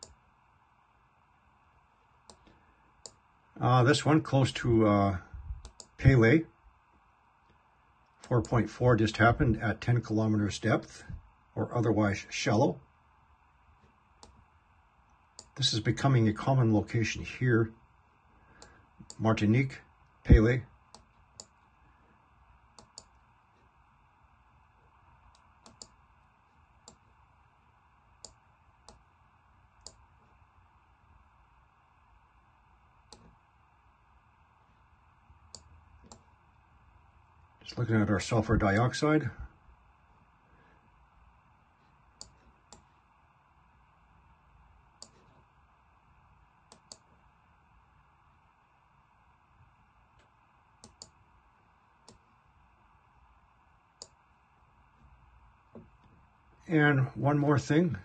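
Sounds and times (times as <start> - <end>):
faint room hiss: 0.0 - 58.0
computer mouse clicking: 2.3 - 3.2, 5.6 - 6.0, 22.7 - 23.2, 25.3 - 26.0, 26.8 - 27.0, 28.2 - 29.0, 29.8 - 30.0, 33.0 - 33.4, 35.5 - 36.3, 42.2 - 42.9, 45.0 - 45.4, 46.7 - 47.2, 50.2 - 51.2, 52.0 - 52.3, 54.0 - 54.2.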